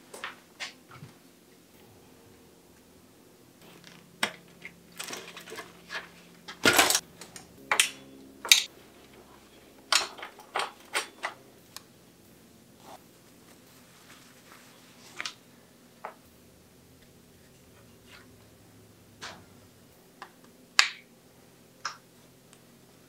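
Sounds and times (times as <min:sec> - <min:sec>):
bicycle clatter: 0:03.6 - 0:08.7
bicycle clicks and rattles: 0:03.6 - 0:08.7, 0:09.8 - 0:11.4.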